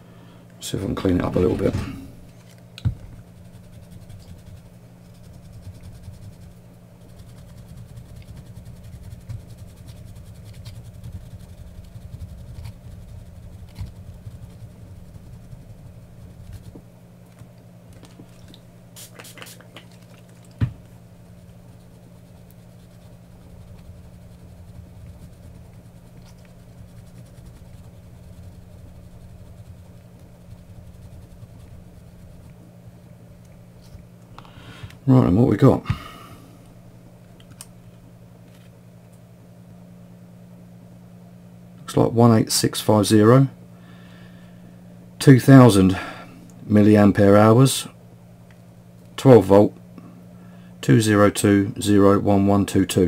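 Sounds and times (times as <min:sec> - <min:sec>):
steady low hum: 0:00.0 - 0:53.0
rubbing on plastic wrap: 0:03.2 - 0:16.8, 0:21.2 - 0:32.6.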